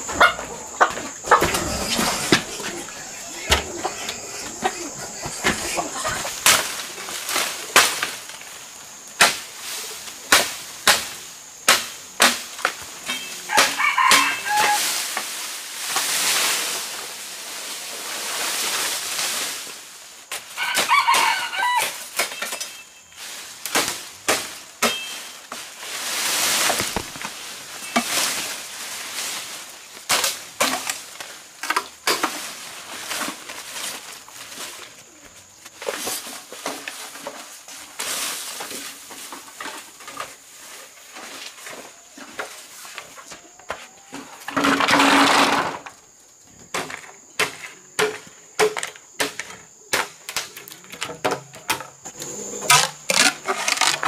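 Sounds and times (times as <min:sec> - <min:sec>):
machete chopping undergrowth: 0:05.2 - 0:08.4, 0:09.2 - 0:09.6, 0:10.2 - 0:14.8, 0:23.6 - 0:25.7, 0:26.5 - 0:28.5, 0:30.0 - 0:31.3, 0:46.7 - 0:50.6
rooster crowing: 0:13.4 - 0:15.0, 0:20.6 - 0:22.1.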